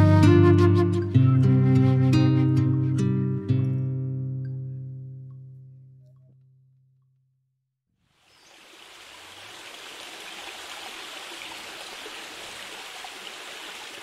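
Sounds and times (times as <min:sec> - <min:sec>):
stream water rushing: 0:08.1 - 0:14.0.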